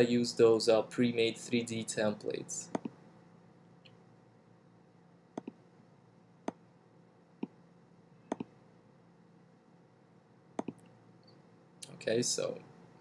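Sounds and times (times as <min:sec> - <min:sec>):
computer mouse button clicking: 0:05.4 - 0:05.6, 0:08.3 - 0:08.5, 0:10.6 - 0:10.8.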